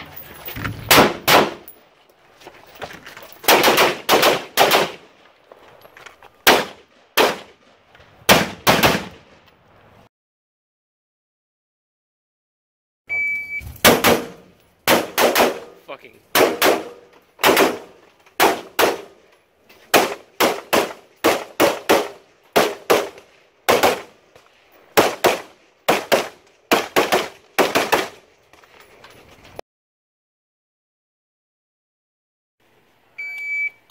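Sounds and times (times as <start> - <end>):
rifle firing paired shots: 0.9 - 1.7, 3.4 - 5.3, 6.4 - 7.6, 8.3 - 9.4, 13.8 - 19.3, 19.9 - 24.2, 24.9 - 28.2
shot timer beep: 13.1 - 13.7, 33.2 - 33.8.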